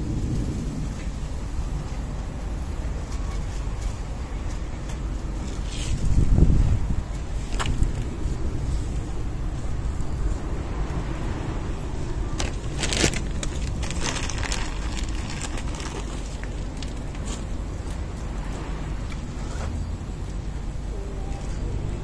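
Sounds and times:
wind buffeting microphone: 0.0 - 22.0
sharp clicks and crackles: 12.3 - 18.1.

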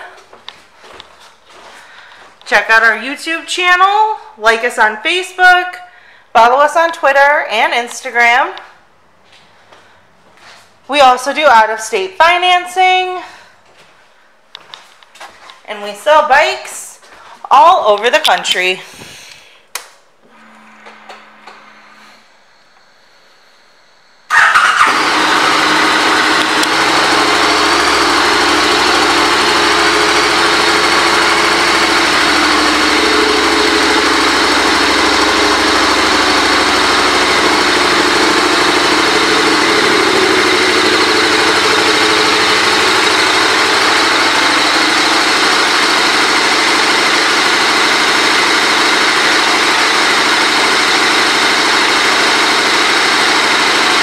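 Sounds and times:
motorcycle engine starting and idling: 24.3 - 54.0.

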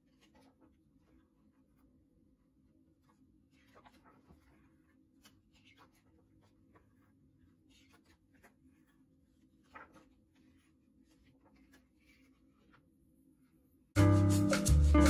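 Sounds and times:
book pages turning: 0.0 - 2.0, 2.8 - 12.8.

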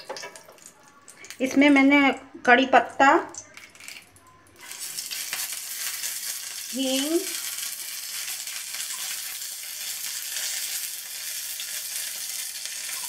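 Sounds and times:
spices sizzling in hot oil: 4.6 - 13.0.

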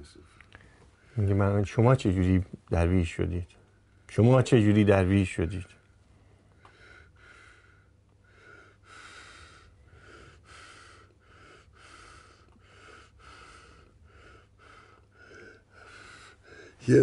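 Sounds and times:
man breathing quickly: 6.1 - 16.8.

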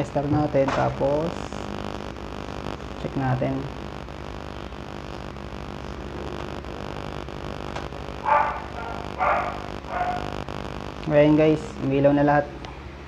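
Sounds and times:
low electrical hum: 0.0 - 13.0
dog barking: 8.2 - 10.3.

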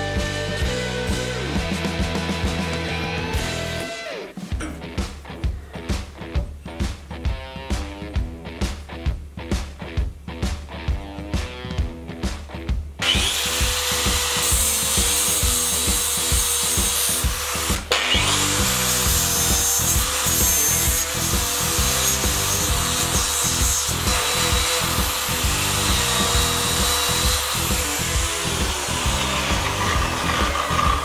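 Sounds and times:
music with a beat: 0.0 - 13.0
angle grinder grinding steel: 13.0 - 31.0.

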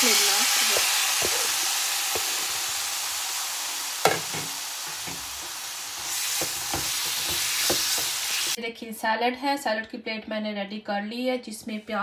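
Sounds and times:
chicken sizzling in hot oil: 0.0 - 8.6.

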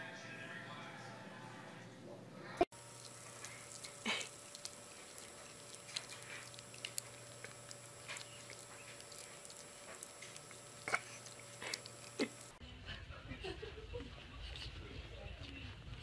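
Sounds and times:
dog chewing on string: 2.8 - 12.6.

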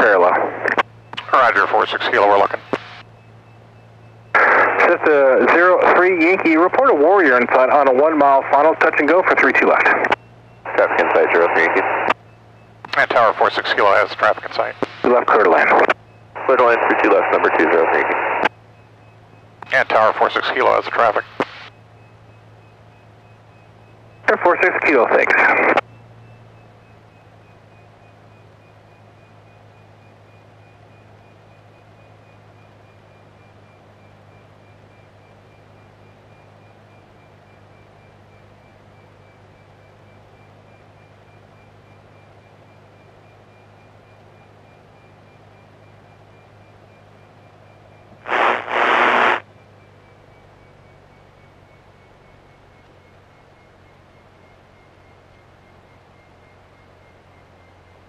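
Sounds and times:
airplane engine running: 0.0 - 58.0
faint high whine: 0.0 - 58.0.

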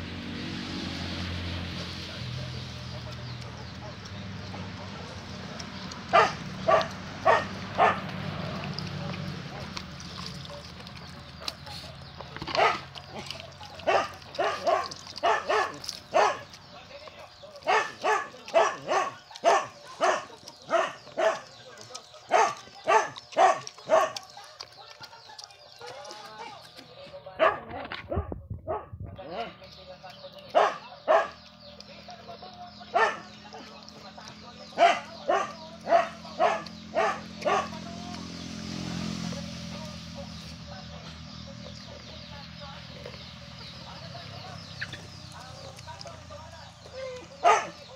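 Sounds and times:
dog eating from metal dish: 2.3 - 28.2, 29.2 - 47.9
dog barking in high yelps: 6.1 - 8.1, 12.6 - 12.9, 13.8 - 16.5, 17.6 - 21.5, 22.3 - 24.3, 30.6 - 31.4, 34.8 - 37.8, 47.2 - 47.8.

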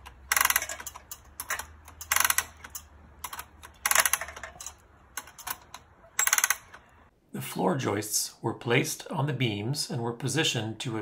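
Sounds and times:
winch ratchet clicking: 0.0 - 6.9.

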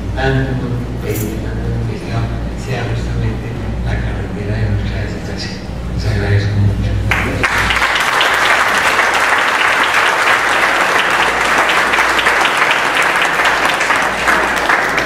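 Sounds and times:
audience applauding: 7.1 - 15.0.

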